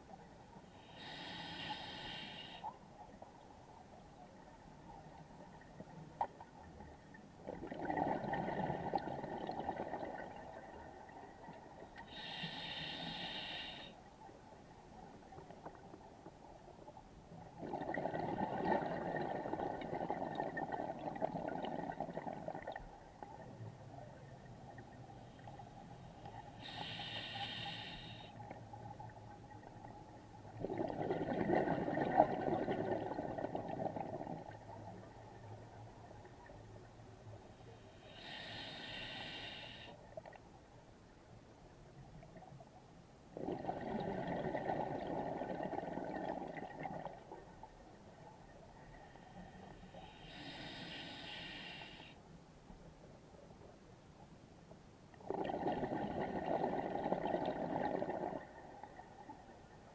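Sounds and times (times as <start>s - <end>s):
regulator hissing inhalations: 0.8s - 2.7s, 12.1s - 14.0s, 26.6s - 28.4s, 37.9s - 40.0s, 49.9s - 52.2s
bubbling exhalations underwater: 7.5s - 10.4s, 17.6s - 22.8s, 30.6s - 34.5s, 43.4s - 47.2s, 55.2s - 58.5s.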